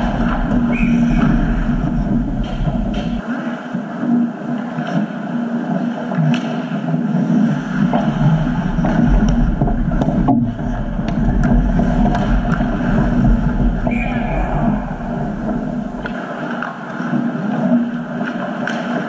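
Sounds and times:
low rumble: 0.0 - 3.2, 7.5 - 16.1
skate blades scraping ice: 0.0 - 3.2, 7.3 - 19.0
steady background noise: 0.0 - 19.0
hockey sticks and puck clicking: 6.2 - 6.7, 11.0 - 19.0.

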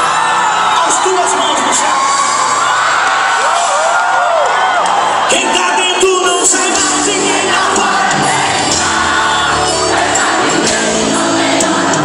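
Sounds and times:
gospel band music: 0.0 - 12.0
crowd singing along: 6.2 - 12.0.

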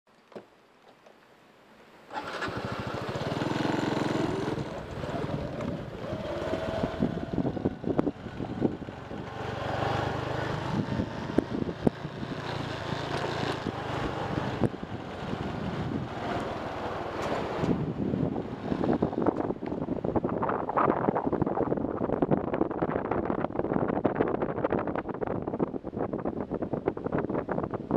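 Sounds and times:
motorcycle engine running: 2.2 - 20.2.

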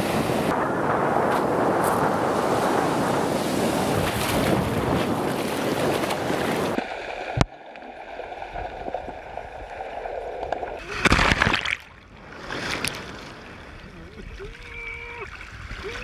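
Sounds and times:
wind buffeting microphone: 0.0 - 6.8
heavy surf breaking: 0.0 - 7.4.

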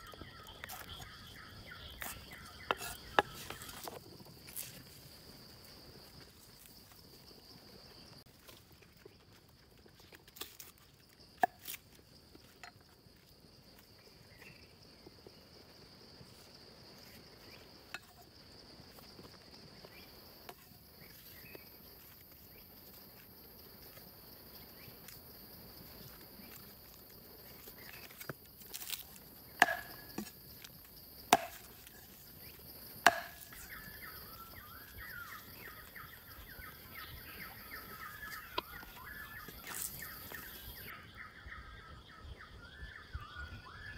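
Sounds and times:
bird chirping: 0.0 - 3.9, 33.4 - 43.9
insect drone: 0.0 - 43.9
cleaver knocking on chopping board: 29.6 - 30.0.

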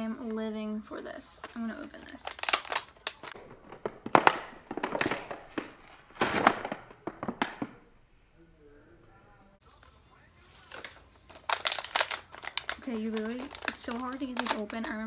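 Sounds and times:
plastic packaging crinkling: 1.4 - 7.8, 9.7 - 15.0.

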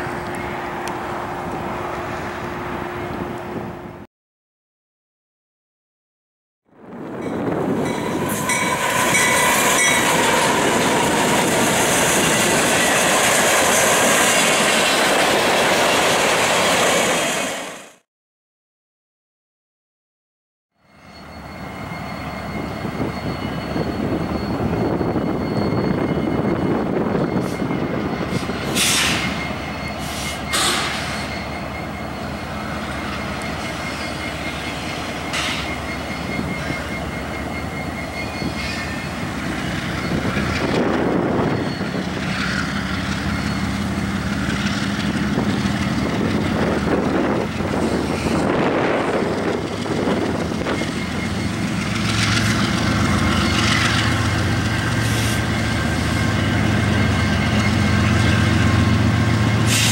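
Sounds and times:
diesel locomotive drone: 0.0 - 4.1, 6.7 - 18.0, 20.8 - 59.9
train wheels rumbling on rail: 6.8 - 18.0, 21.1 - 59.9
train cars clanking: 7.1 - 17.6, 21.3 - 59.9
wheel flange squeals: 20.8 - 59.9.

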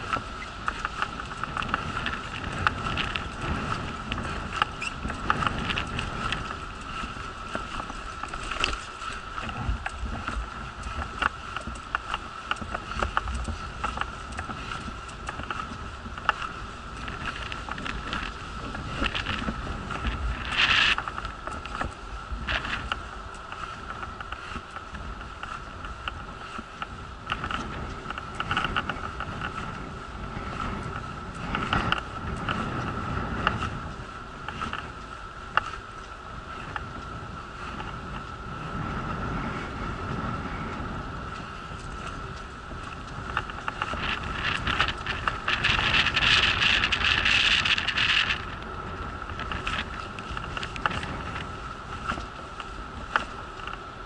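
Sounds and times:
steady high whine: 0.0 - 54.0
wheelchair low rumble: 0.0 - 54.0
low rumble: 38.0 - 53.2
wheelchair wheels rattling on bricks: 43.1 - 51.4.

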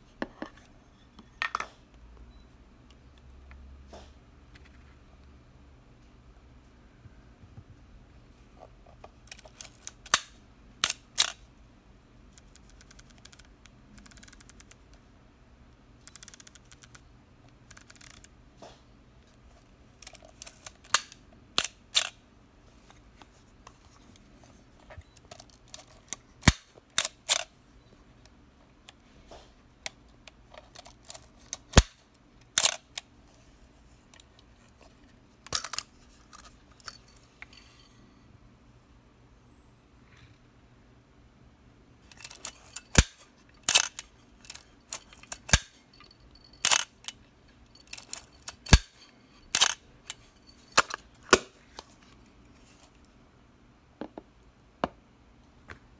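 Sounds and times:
film-advance lever winding: 9.3 - 11.4, 16.0 - 17.0, 17.7 - 18.3, 25.3 - 27.5, 32.6 - 33.0, 42.2 - 45.7, 46.6 - 47.2, 49.5 - 50.2.

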